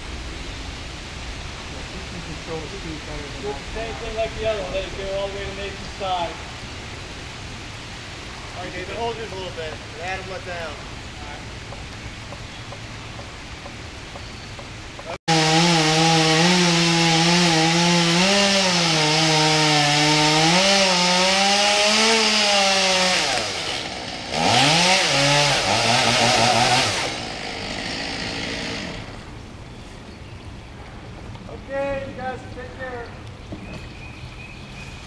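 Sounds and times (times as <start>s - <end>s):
chainsaw cutting wood: 15.0s - 29.3s.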